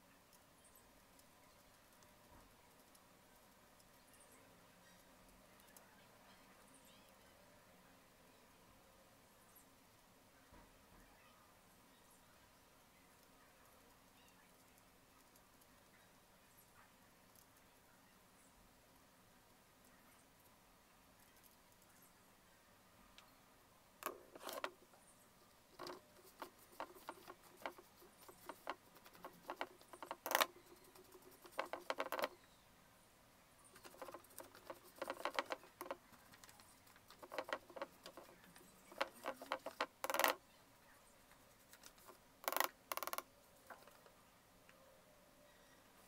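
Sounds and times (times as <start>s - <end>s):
paintbrush sweeping powder: 26.0s - 32.0s.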